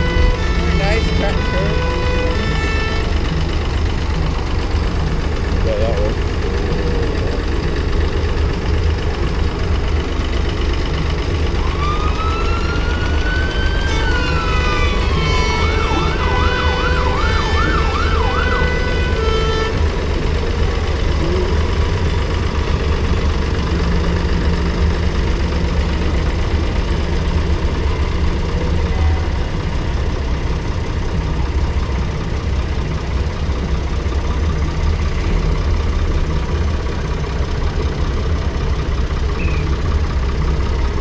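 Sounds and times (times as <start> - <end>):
tractor engines running: 0.0 - 41.0
electronic siren wailing and yelping: 11.6 - 19.6.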